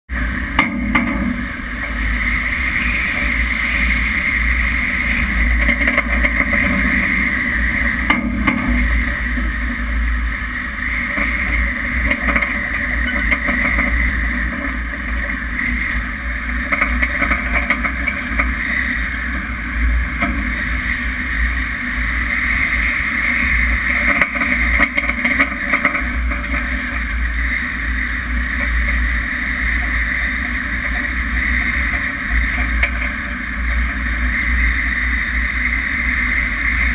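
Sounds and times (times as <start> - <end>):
heavy low rumble: 0.1 - 36.9
wind: 0.1 - 36.9.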